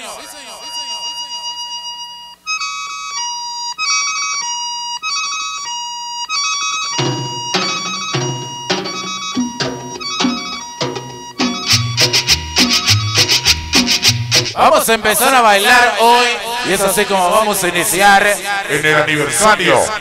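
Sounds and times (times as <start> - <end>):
high repeating melody: 6.4 - 14.6
drums and bass dance beat: 7.0 - 14.6.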